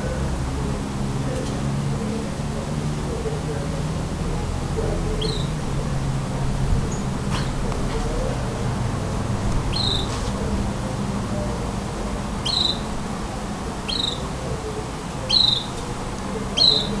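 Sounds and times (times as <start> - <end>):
steady low hum: 0.0 - 17.0
bird calls: 5.2 - 5.6, 9.7 - 10.2, 12.4 - 12.9, 13.9 - 14.3, 15.2 - 15.8, 16.5 - 17.0.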